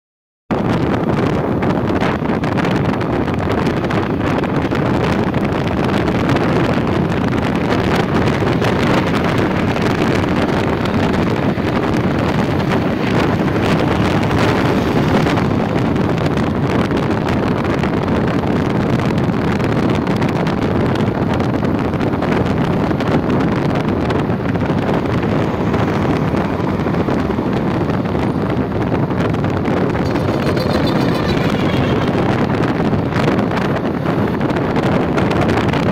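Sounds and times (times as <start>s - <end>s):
road noise: 0.5s - 35.9s
wind rushing over microphone: 0.5s - 35.9s
motorcycle engine: 7.0s - 17.4s, 23.8s - 35.3s.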